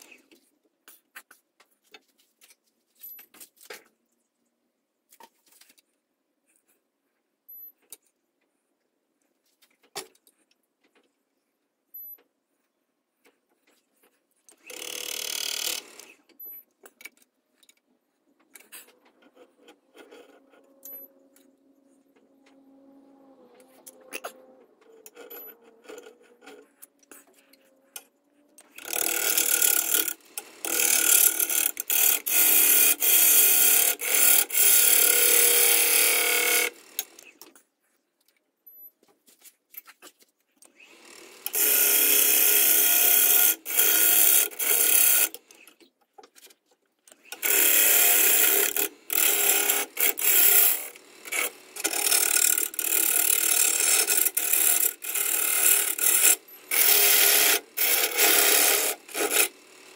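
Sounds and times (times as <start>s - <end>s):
lathe tool cutting wood: 14.6s - 16.2s, 19.0s - 26.6s, 28.7s - 37.3s, 40.9s - 45.4s, 47.3s - 59.9s.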